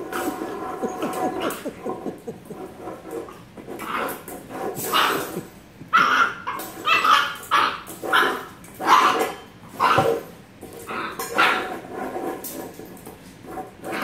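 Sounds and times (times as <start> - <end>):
puppy barking: 5.9 - 10.2.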